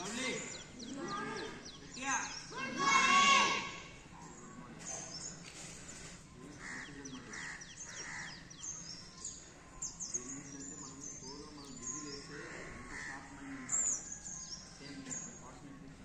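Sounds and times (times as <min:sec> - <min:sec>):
small birds chirping: 0:00.0 - 0:16.0
crows cawing: 0:06.5 - 0:08.8, 0:12.3 - 0:14.2.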